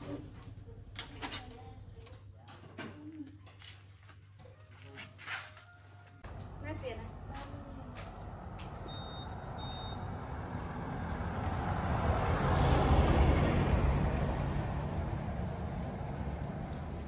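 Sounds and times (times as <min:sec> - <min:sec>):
vehicle passing by: 0:06.3 - 0:17.0
short high beeps: 0:08.8 - 0:10.1.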